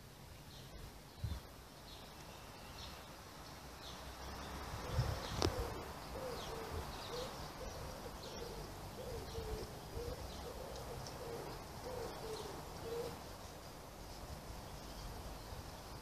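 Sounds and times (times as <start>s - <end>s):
small birds chirping: 0.0s - 16.0s
dove cooing: 4.8s - 13.2s.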